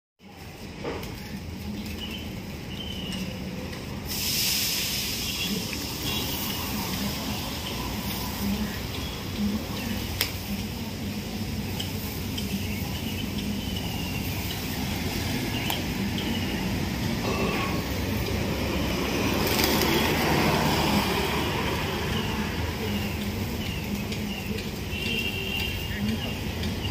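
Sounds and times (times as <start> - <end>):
traffic rumble: 0.2 - 26.9
hiss: 4.0 - 8.6.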